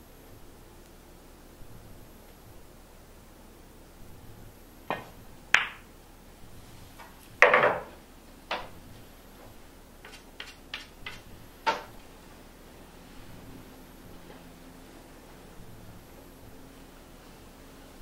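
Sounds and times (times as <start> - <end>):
pool balls clicking: 4.8 - 5.9, 7.0 - 8.8, 9.4 - 12.1
ball dropping into pocket: 4.9 - 5.8
cue tip clicking ball: 4.9 - 5.8, 10.0 - 11.9.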